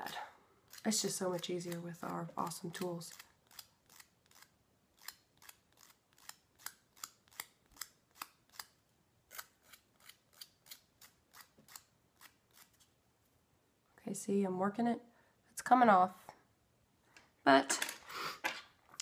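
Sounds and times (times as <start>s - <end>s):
nail file scraping fingernail: 2.8s - 12.9s.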